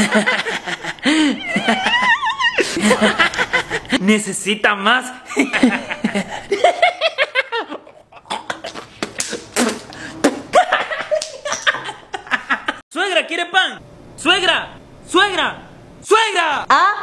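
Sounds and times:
people laughing: 0:00.0 - 0:04.0, 0:05.3 - 0:08.8, 0:10.5 - 0:12.8.

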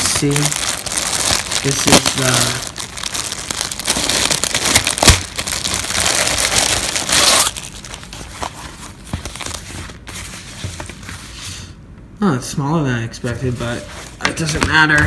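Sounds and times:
plastic bag crinkling: 0:00.0 - 0:10.1
fabric webbing rustling: 0:00.0 - 0:11.4.

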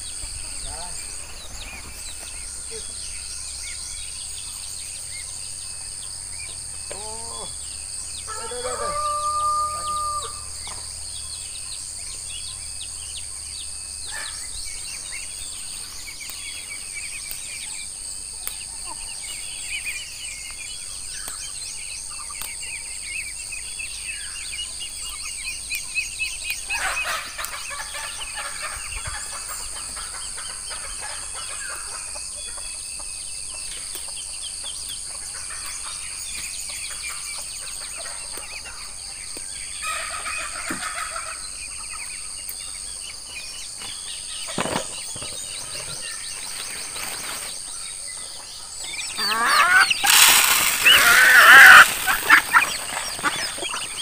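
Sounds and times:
insects droning: 0:00.0 - 0:54.0
rooster crowing: 0:08.3 - 0:10.5.

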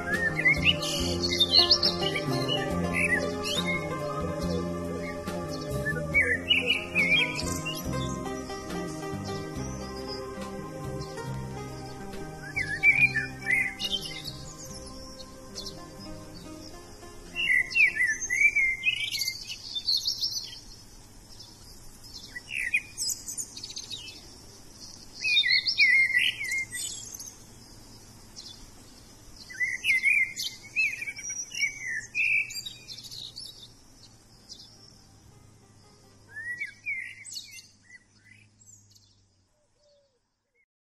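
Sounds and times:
songbirds warbling: 0:00.0 - 0:40.6.

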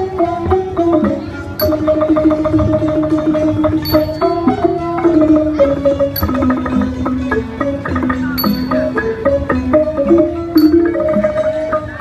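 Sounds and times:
bamboo flute melody: 0:00.0 - 0:12.0
fiddles playing: 0:00.0 - 0:12.0
plucked string notes: 0:00.0 - 0:12.0
high metallic strikes: 0:01.6 - 0:07.1, 0:07.9 - 0:09.3.

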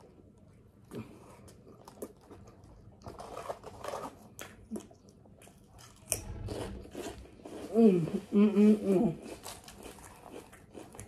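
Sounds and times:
chewing with wet mouth clicks: 0:09.4 - 0:11.0.

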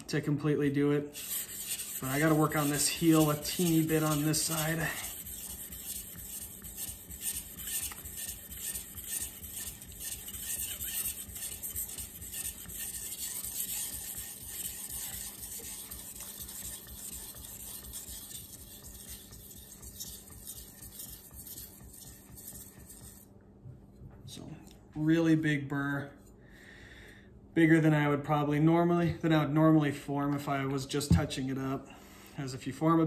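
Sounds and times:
knife scraping on whetstone: 0:01.2 - 0:23.2.

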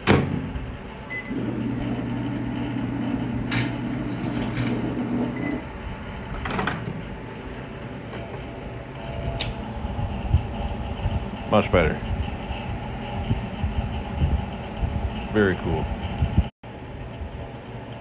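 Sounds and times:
microwave door shutting: 0:00.0 - 0:02.5
microwave oven humming: 0:00.0 - 0:18.0.

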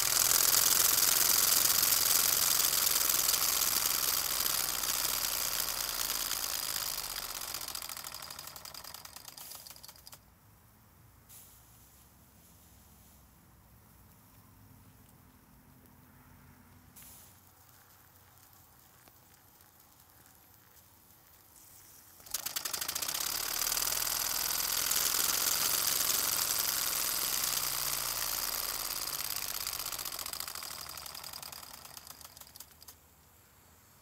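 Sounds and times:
toy steam engine chuffing: 0:00.0 - 0:10.2, 0:21.2 - 0:33.0.

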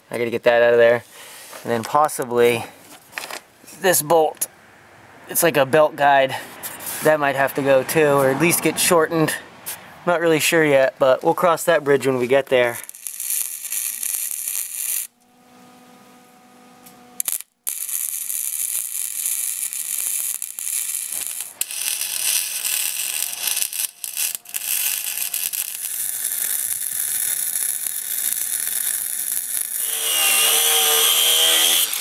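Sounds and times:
welding arc crackling and hissing: 0:12.3 - 0:15.1, 0:17.2 - 0:32.0
angle grinder cutting metal: 0:12.8 - 0:15.1, 0:17.2 - 0:32.0.

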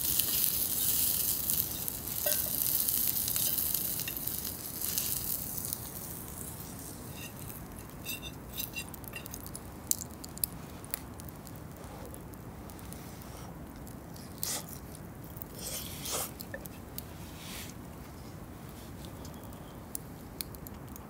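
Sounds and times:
food sizzling: 0:00.0 - 0:10.5
light clicks and clinks: 0:01.7 - 0:02.6, 0:07.2 - 0:11.0.

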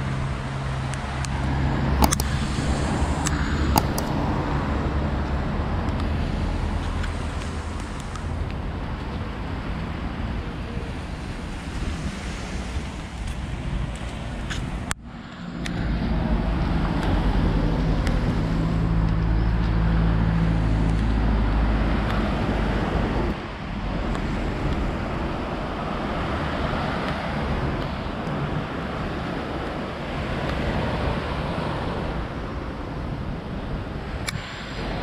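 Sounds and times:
low steady rumble: 0:00.0 - 0:30.3
wind on microphone: 0:00.0 - 0:35.0
small waves breaking on sand: 0:06.1 - 0:18.7, 0:20.7 - 0:35.0.

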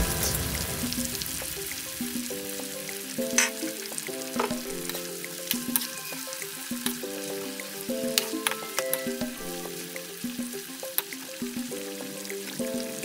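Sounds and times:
soft background music: 0:00.0 - 0:13.0
vegetables sizzling in oil: 0:00.0 - 0:13.0.

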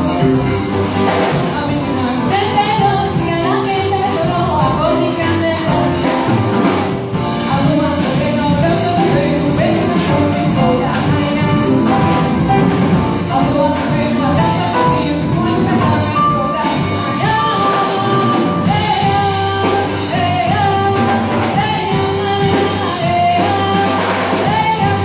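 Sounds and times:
live band playing: 0:00.0 - 0:25.0
person singing: 0:07.2 - 0:25.0.

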